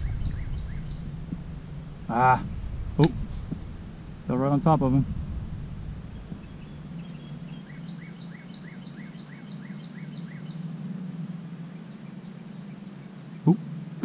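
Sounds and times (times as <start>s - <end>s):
songbird singing falling notes: 0.0s - 4.3s, 5.0s - 10.6s
low background hum: 0.0s - 14.0s.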